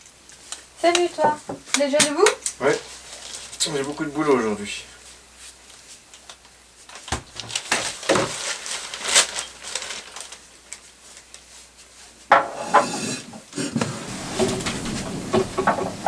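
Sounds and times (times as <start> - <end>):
newspaper pages handled: 5.4 - 12.2.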